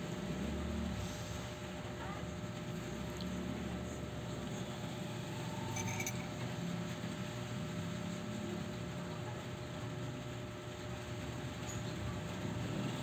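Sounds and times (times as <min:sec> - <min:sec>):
low rumbling background noise: 0:00.0 - 0:13.0
light clink: 0:05.7 - 0:06.4.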